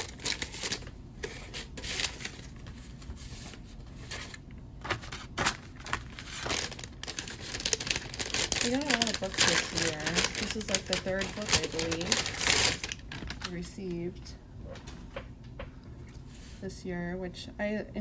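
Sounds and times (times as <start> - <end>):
paper wrapping rustling: 0.0 - 13.7.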